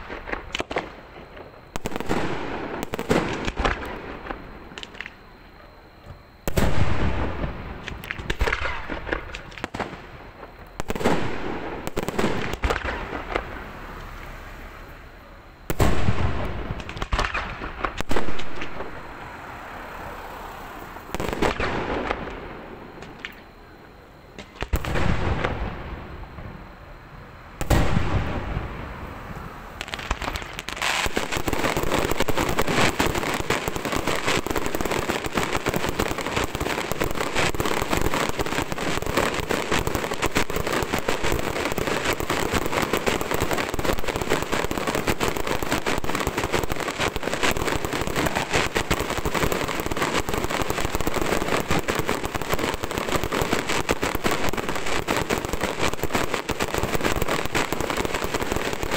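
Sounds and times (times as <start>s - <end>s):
fireworks crackling: 0.0s - 58.9s
firework bang: 6.5s - 10.0s, 15.7s - 19.0s, 27.6s - 29.0s.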